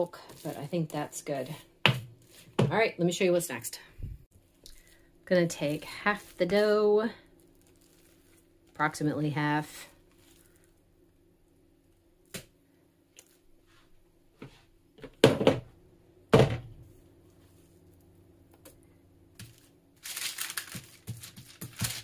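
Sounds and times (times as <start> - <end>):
parchment paper rustling: 0.2 - 1.6, 4.8 - 9.0, 19.4 - 22.0
dough thumping: 1.8 - 2.8.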